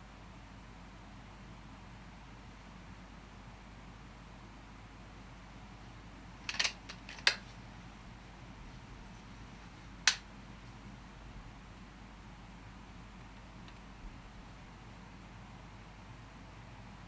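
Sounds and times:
air rifle mechanical clicks: 6.5s - 7.5s, 10.0s - 10.3s.

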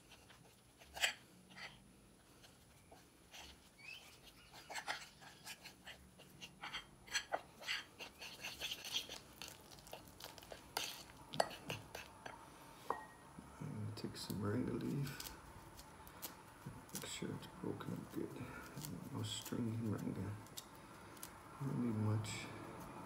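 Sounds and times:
metal fork scraping ceramic plate: 3.4s - 9.2s, 10.8s - 12.1s.

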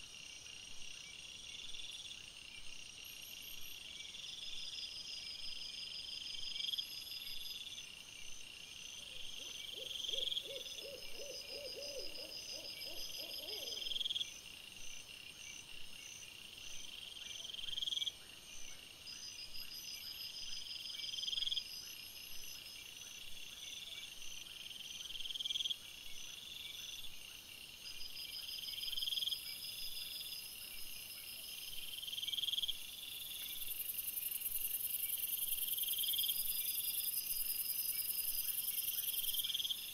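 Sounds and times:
insects calling: 9.1s - 14.4s
low pulsed croaking call: 9.5s - 14.0s.

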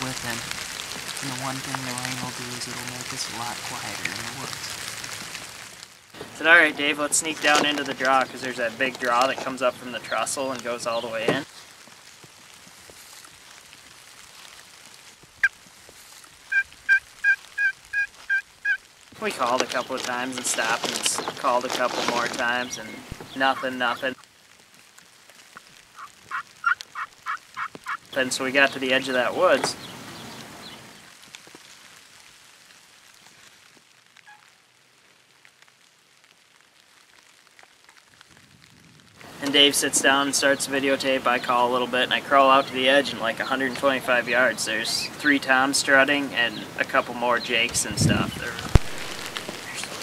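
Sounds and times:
light ticks and crackles: 0.0s - 50.0s
soft woodland hiss: 0.0s - 50.0s
turkey call hen yelps: 16.5s - 18.8s, 26.0s - 28.0s.

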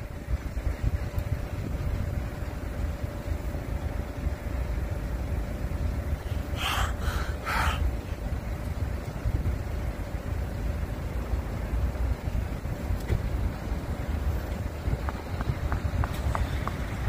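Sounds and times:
vehicle rumble: 0.0s - 17.0s
short breathy hisses: 6.3s - 8.2s.

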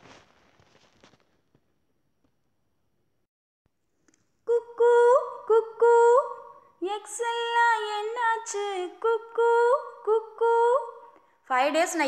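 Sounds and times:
woman singing unaccompanied: 4.5s - 11.0s.

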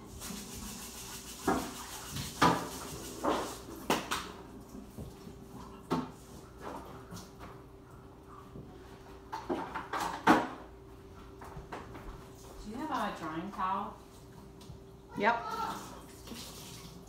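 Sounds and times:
kitchenware knocks and clatters: 9.3s - 10.7s.

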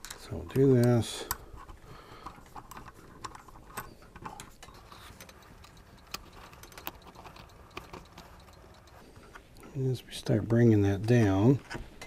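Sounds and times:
clamp screw clicks and ticks: 0.0s - 9.0s.

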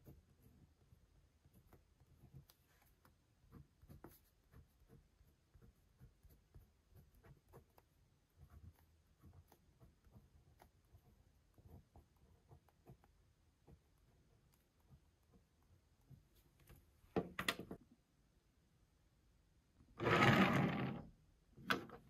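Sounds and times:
pen scratching: 0.0s - 16.8s.

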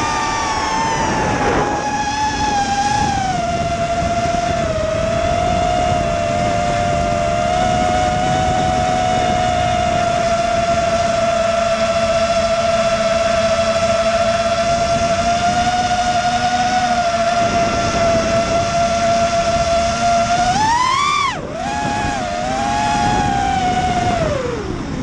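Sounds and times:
low rushing noise: 0.0s - 10.9s
drone motors whining: 0.0s - 25.0s.

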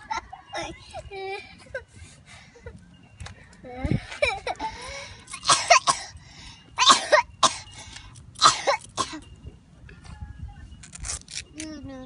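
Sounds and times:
boy coughing: 5.3s - 6.1s, 6.8s - 7.7s, 8.4s - 9.2s.

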